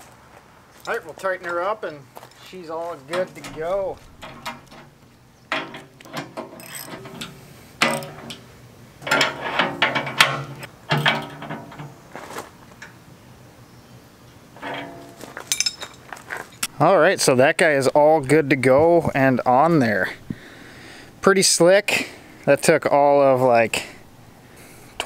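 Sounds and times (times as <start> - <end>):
ratchet wrench clicking: 6.6 - 8.1.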